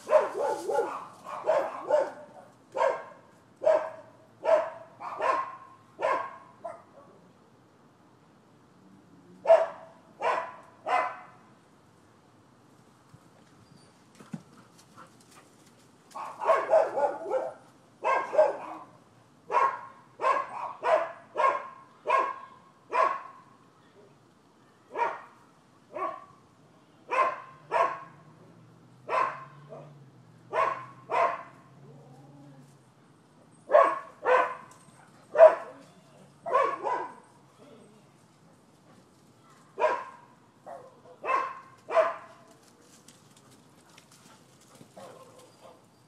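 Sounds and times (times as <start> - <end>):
dog barking: 0.0 - 7.1, 9.4 - 11.4, 16.2 - 23.4, 24.9 - 26.4, 27.1 - 28.2, 29.1 - 31.7, 33.7 - 34.7, 35.3 - 35.8, 36.4 - 37.3, 39.8 - 42.5, 45.0 - 45.8.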